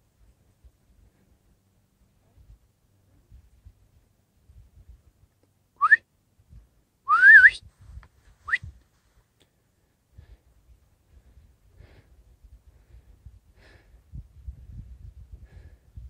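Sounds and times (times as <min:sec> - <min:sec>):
person whistling: 0:05.8 - 0:06.0, 0:07.1 - 0:07.6, 0:08.5 - 0:08.7.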